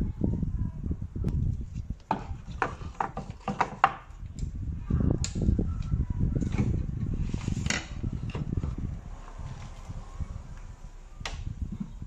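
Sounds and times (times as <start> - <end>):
plastic rubbing on wood: 1.4 - 4.1
plastic housings clicking and knocking: 2.0 - 4.5.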